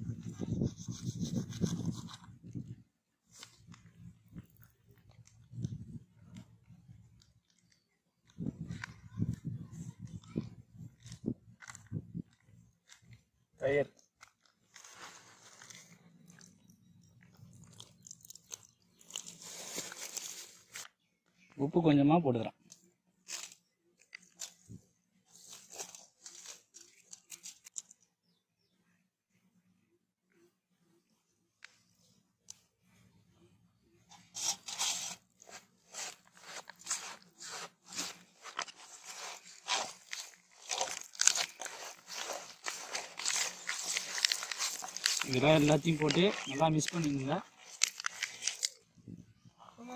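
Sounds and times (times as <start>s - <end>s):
plastic pouch crinkling: 14.0s - 20.9s, 25.3s - 27.9s, 34.3s - 48.8s.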